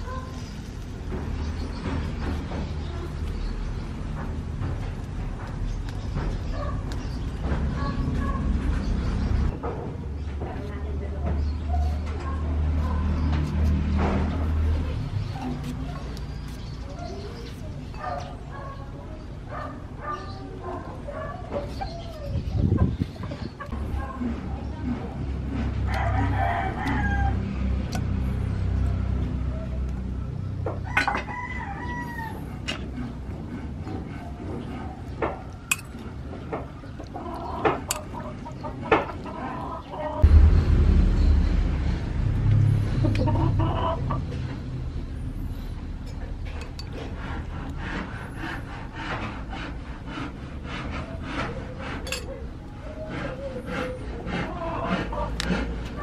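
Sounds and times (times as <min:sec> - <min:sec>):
chickens clucking: 0:11.2 - 0:27.4, 0:28.0 - 0:40.3, 0:42.9 - 0:44.7, 0:45.9 - 0:56.0
rooster crowing: 0:25.9 - 0:27.4, 0:30.8 - 0:32.5
metal spoon scraping a bowl: 0:35.7 - 0:36.1, 0:46.0 - 0:47.8, 0:51.4 - 0:52.4
steady low rumble: 0:40.2 - 0:46.2.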